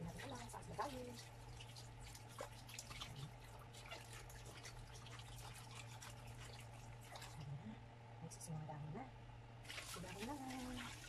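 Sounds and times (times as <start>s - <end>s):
tap water splashing: 0.0s - 7.5s, 9.6s - 11.0s
steady low hum: 0.0s - 11.0s.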